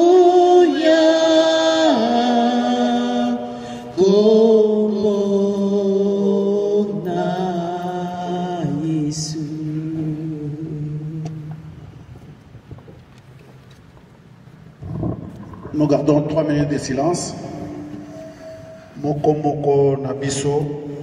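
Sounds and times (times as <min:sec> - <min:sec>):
slow hymn singing: 0:00.0 - 0:12.6, 0:17.3 - 0:19.5.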